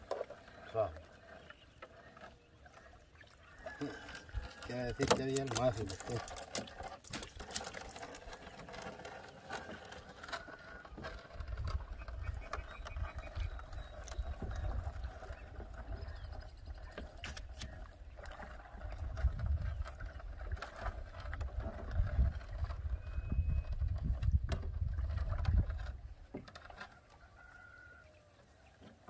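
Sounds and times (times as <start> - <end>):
wind buffeting microphone: 11.3 - 17.8, 18.7 - 26.2.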